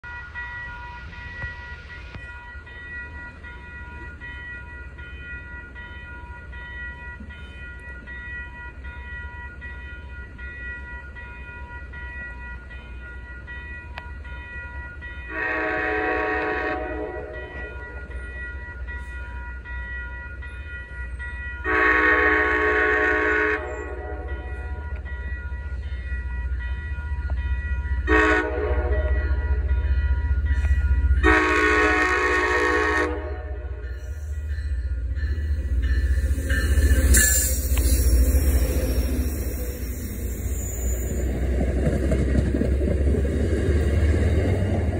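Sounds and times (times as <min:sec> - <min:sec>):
crossing bell ringing: 0:00.0 - 0:44.9
locomotive rumble: 0:09.5 - 0:44.9
locomotive horn blasts: 0:15.3 - 0:17.7, 0:21.6 - 0:24.8, 0:28.0 - 0:29.7, 0:31.2 - 0:33.9.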